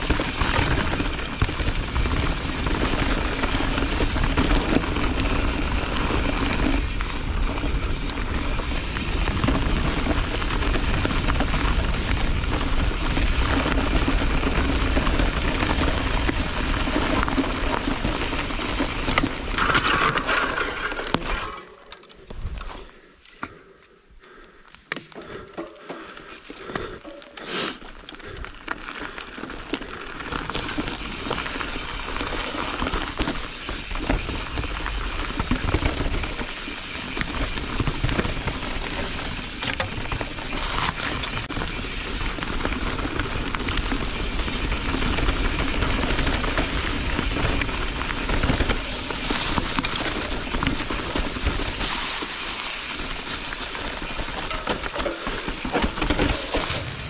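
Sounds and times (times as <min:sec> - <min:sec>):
bike rattling: 0:00.0 - 0:57.0
bike tyres rolling over dirt: 0:00.0 - 0:57.0.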